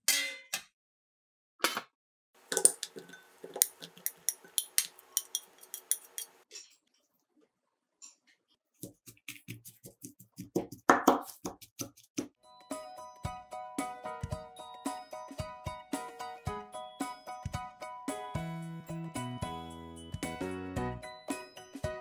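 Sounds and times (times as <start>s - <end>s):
kitchenware clinking: 2.4s - 6.8s.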